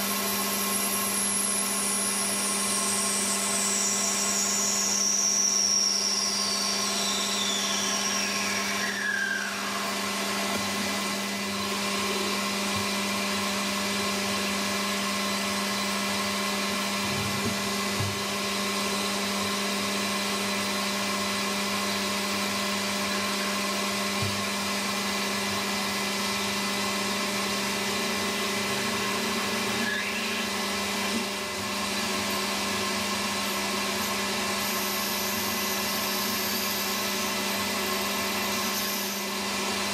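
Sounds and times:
high whine falling in pitch: 0:01.2 - 0:10.4.

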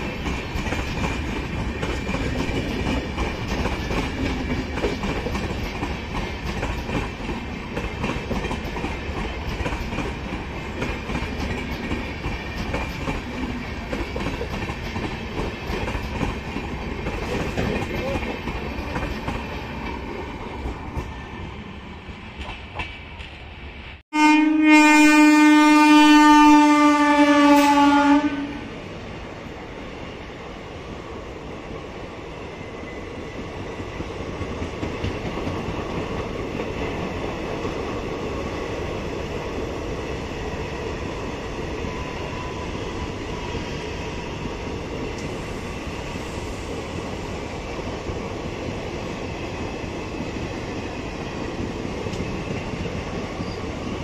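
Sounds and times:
train wheels clattering on rails: 0:00.0 - 0:23.5, 0:32.4 - 0:54.0
train horn blast: 0:24.1 - 0:28.8.

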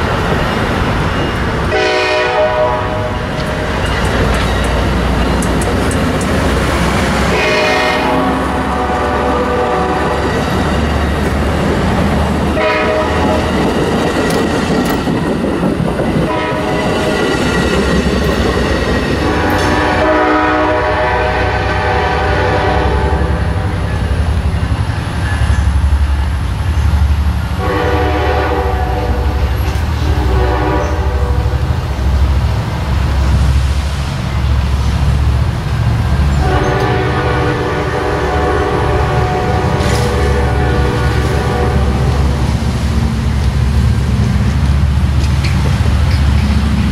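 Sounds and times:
train cars wheel-on-rail noise: 0:00.0 - 0:46.9
locomotive air horn blasts: 0:01.7 - 0:03.3, 0:07.2 - 0:10.3, 0:12.5 - 0:13.4, 0:16.3 - 0:17.2, 0:19.2 - 0:23.8, 0:27.6 - 0:31.6, 0:36.4 - 0:42.4.

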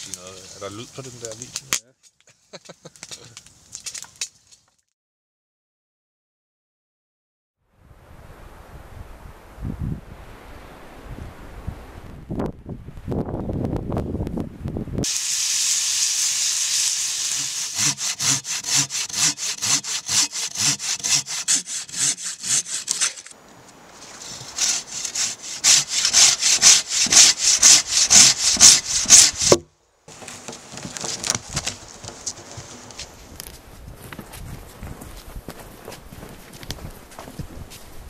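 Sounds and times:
hand saw cutting wood: 0:17.2 - 0:23.4, 0:24.2 - 0:33.0.

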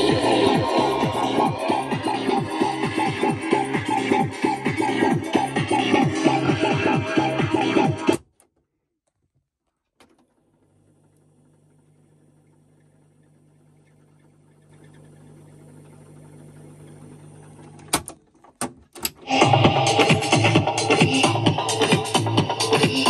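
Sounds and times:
boombox music: 0:00.0 - 0:08.2, 0:19.2 - 0:23.0
cassette deck running hum: 0:10.0 - 0:19.2.

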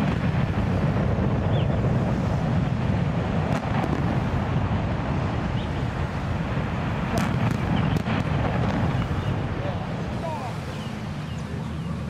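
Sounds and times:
deep rumble of building collapse: 0:00.0 - 0:12.0
wind on microphone: 0:00.0 - 0:12.0
sharp cracks: 0:06.4 - 0:10.1.

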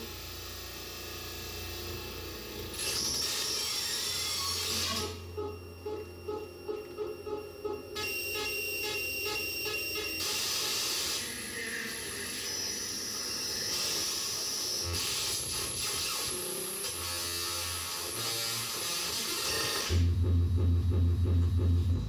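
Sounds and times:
electronic pulsing beeps: 0:02.8 - 0:11.5.

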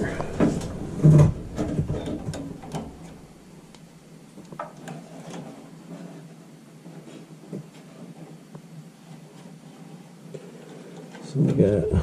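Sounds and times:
clicks taps and rustling of wires: 0:00.0 - 0:06.3
low steady hum: 0:00.0 - 0:12.0.

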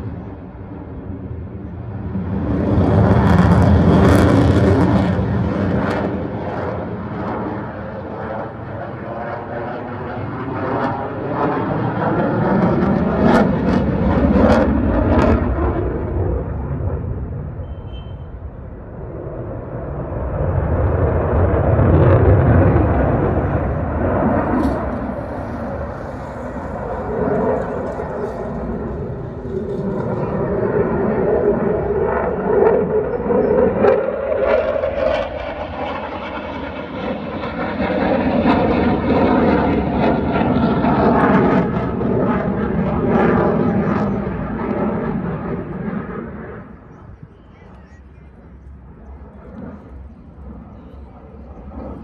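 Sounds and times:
fighter jet passing overhead: 0:00.0 - 0:52.0.

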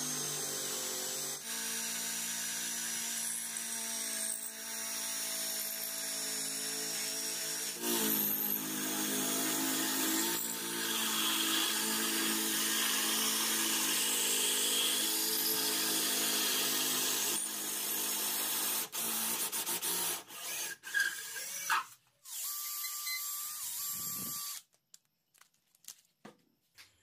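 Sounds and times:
cordless drill motor running: 0:19.8 - 0:24.7.

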